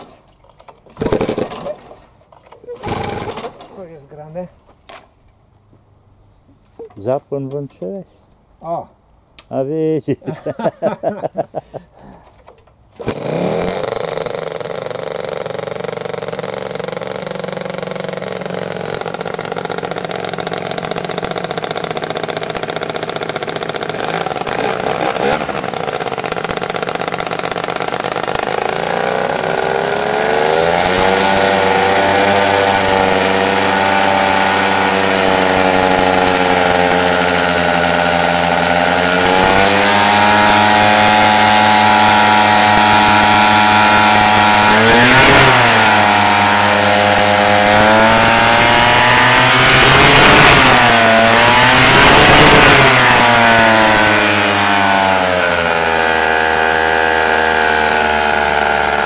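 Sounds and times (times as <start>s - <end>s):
two-stroke engine running: 13.0s - 59.0s.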